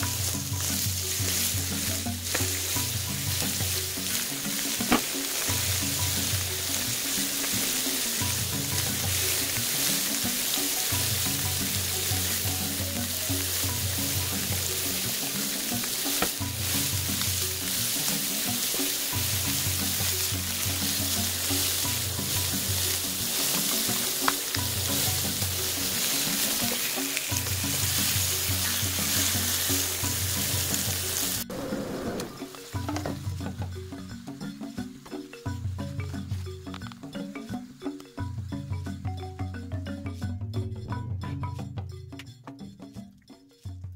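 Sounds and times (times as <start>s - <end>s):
meat frying in a pan: 0.0s - 31.4s
low repeating music: 0.0s - 31.5s, 32.3s - 43.9s.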